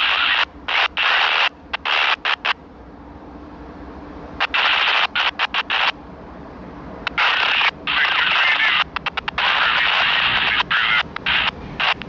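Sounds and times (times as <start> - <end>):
radio scanner static bursts: 0.0 - 2.6, 4.4 - 6.0, 7.0 - 12.0
diesel locomotive hum: 0.0 - 12.0.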